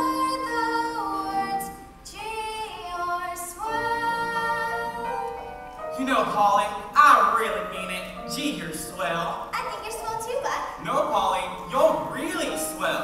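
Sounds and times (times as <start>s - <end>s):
two people singing a duet: 0.0s - 5.4s.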